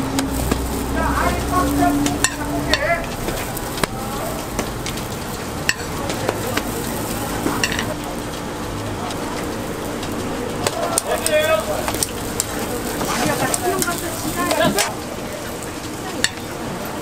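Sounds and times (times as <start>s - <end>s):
metal spatula scraping griddle: 0.0s - 5.1s
dough sizzling on griddle: 0.0s - 17.0s.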